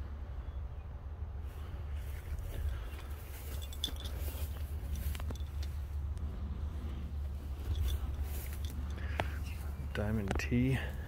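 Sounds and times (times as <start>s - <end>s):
rustling through tall grass: 1.4s - 10.0s.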